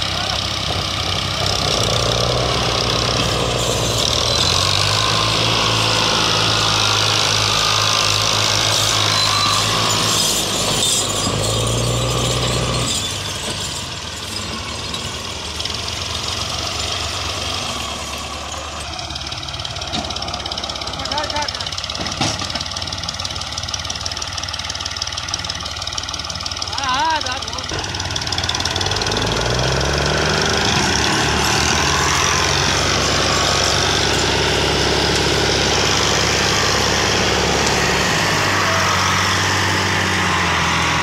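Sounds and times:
tractor diesel engine straining: 0.0 - 41.0.

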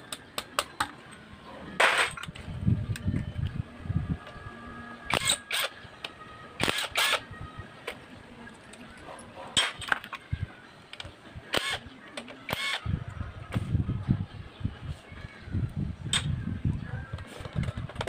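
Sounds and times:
impact driver bursts: 5.1 - 5.7, 6.6 - 7.2, 11.5 - 11.8, 12.5 - 12.8.

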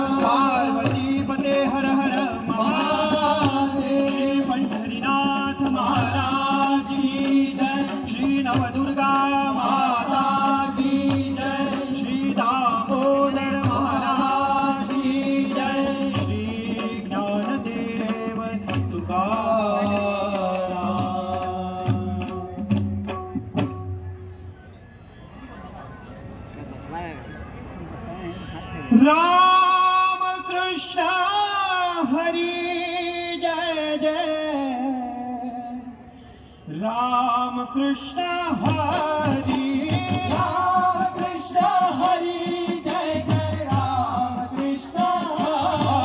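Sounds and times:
drum strokes: 0.0 - 24.4, 38.3 - 46.0
person singing devotional melody: 36.8 - 46.0.

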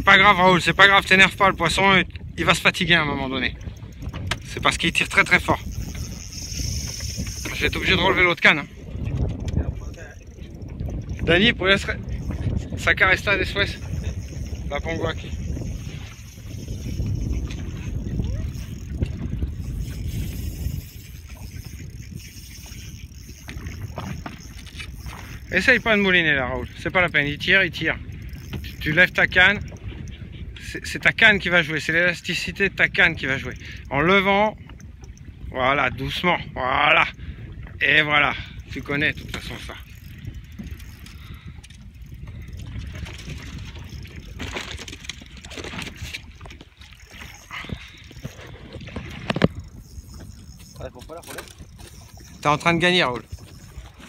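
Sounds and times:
water lapping against boat hull: 0.0 - 54.0
wind rumbling on microphone: 0.0 - 54.0
water slapping against boat hull: 3.6 - 5.3, 42.6 - 54.0.

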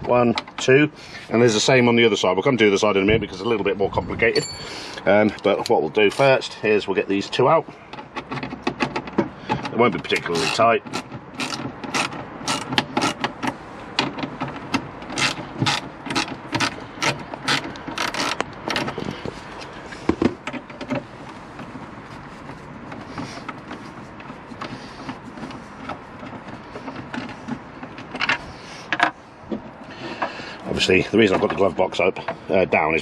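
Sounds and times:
handling sounds: 4.2 - 32.0
ratchet clicking: 10.4 - 13.3, 15.1 - 18.9.

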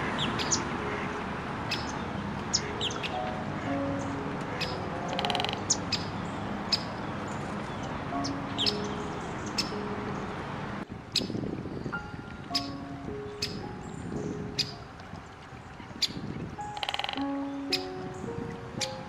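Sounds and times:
bird trill: 0.0 - 10.4, 11.1 - 19.0
small birds chirping: 0.0 - 19.0
soft background music: 0.0 - 19.0.

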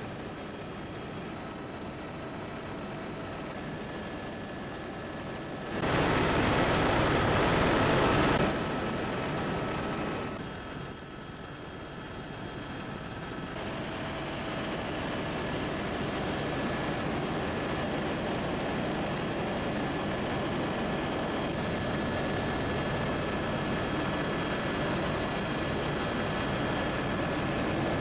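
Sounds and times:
helicopter engine and rotor noise: 0.0 - 28.0.

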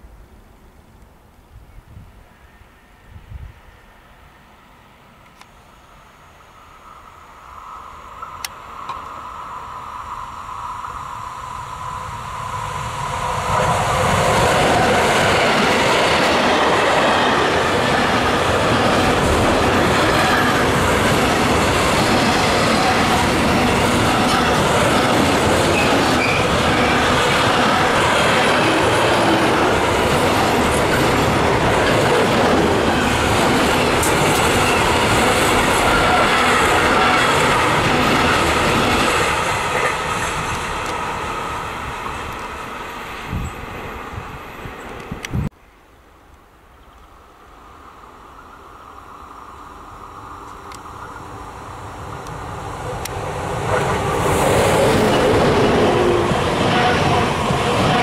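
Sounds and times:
freight train passing: 0.0 - 46.2, 46.9 - 58.0
wheel-and-rail noise: 3.6 - 45.5, 48.1 - 58.0.

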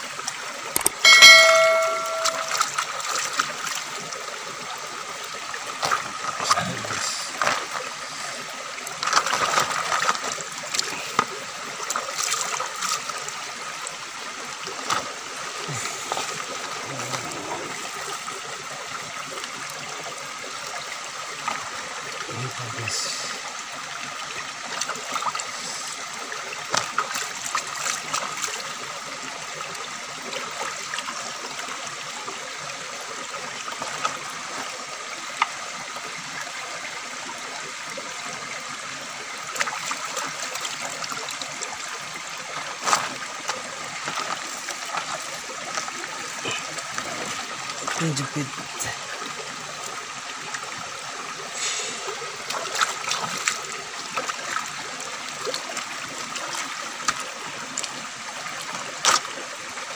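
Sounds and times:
small clicks and splashes: 0.0 - 4.0, 5.6 - 13.5, 14.6 - 15.3, 20.6 - 21.8, 24.7 - 25.9, 26.6 - 28.9, 33.6 - 35.6, 39.4 - 50.7, 52.4 - 59.9
river water flowing: 0.0 - 59.9.

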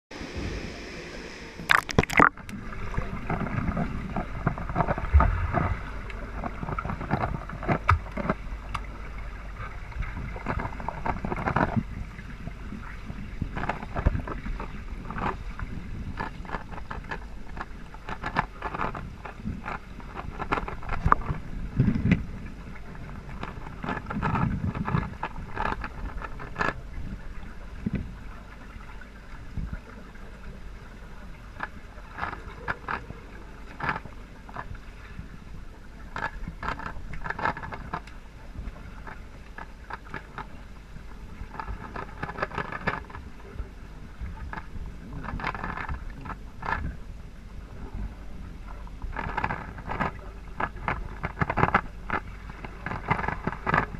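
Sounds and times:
low rumbles: 0.1 - 18.1
underwater water wash: 0.1 - 53.9
splash: 0.2 - 8.4
small clicks and knocks: 3.3 - 8.9, 10.4 - 11.8, 13.4 - 15.4, 16.1 - 22.3, 23.2 - 26.8, 31.6 - 33.1, 36.0 - 38.2, 39.0 - 40.6, 41.4 - 43.3, 44.4 - 47.0, 49.0 - 53.9.

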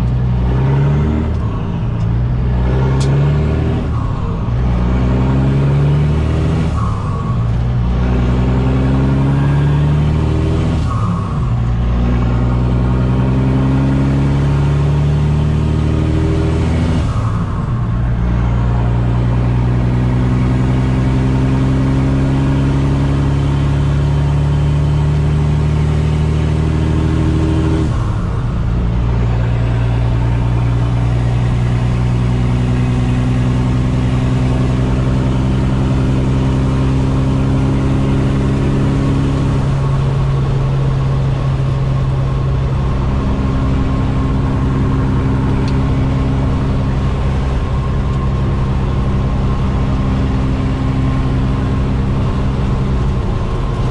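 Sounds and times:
diesel truck engine pulling through gears: 0.0 - 53.9.

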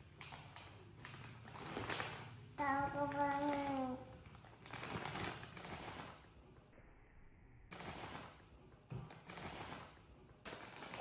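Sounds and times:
plastic pack crinkling: 1.0 - 6.1, 10.5 - 11.0.

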